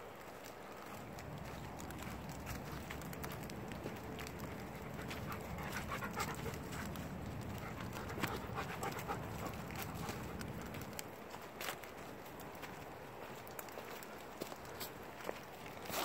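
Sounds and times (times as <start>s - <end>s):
footsteps crunching through leaves: 0.1s - 16.0s
dog panting: 1.8s - 11.0s.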